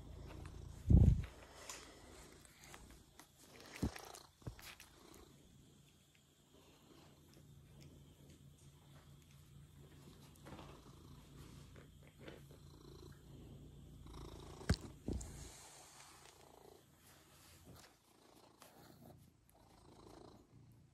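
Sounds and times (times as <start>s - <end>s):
cat purring: 0.0s - 20.9s.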